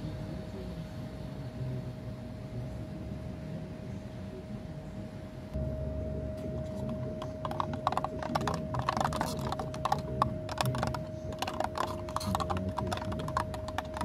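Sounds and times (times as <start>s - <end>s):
steady hum: 0.0s - 14.0s
metal stirrer scraping plastic cup: 6.6s - 14.0s.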